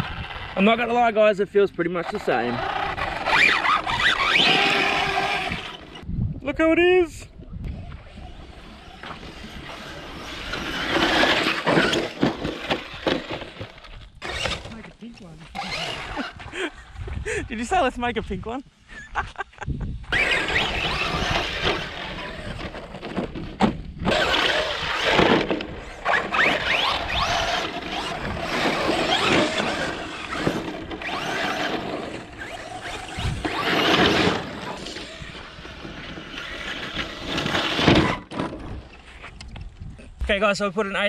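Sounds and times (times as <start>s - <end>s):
tyres scrabbling in sand: 2.0s - 6.0s, 8.1s - 16.5s, 20.1s - 39.8s
electric toy truck motor whine: 2.6s - 6.1s, 8.0s - 14.7s, 15.6s - 16.4s, 20.1s - 23.3s, 24.0s - 38.3s.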